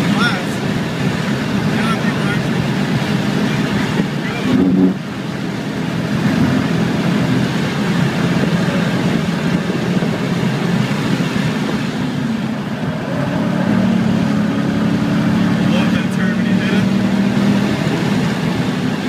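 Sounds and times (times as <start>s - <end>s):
car engine pulling: 0.0s - 19.0s.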